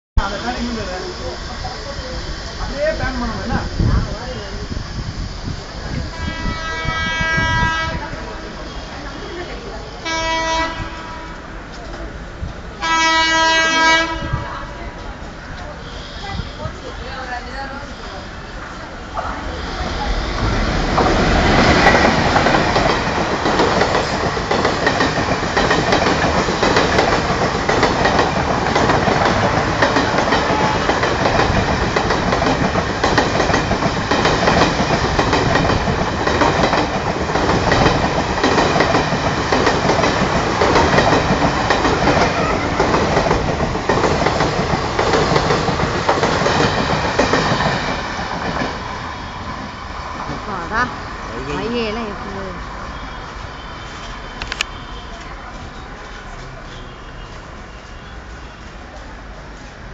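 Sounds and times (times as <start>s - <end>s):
train passing at speed: 0.2s - 59.9s
wheels clacking over rail joints: 20.1s - 48.9s.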